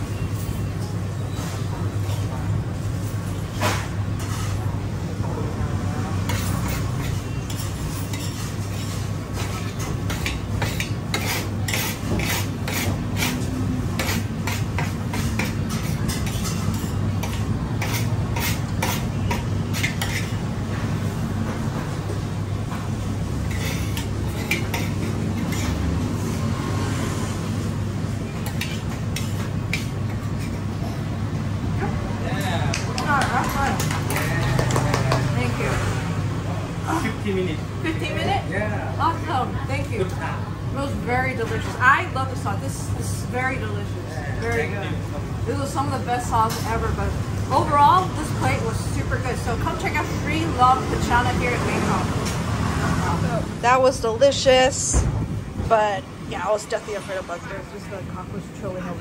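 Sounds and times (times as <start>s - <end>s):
metal spoon scraping ceramic platter: 14.0s - 20.4s.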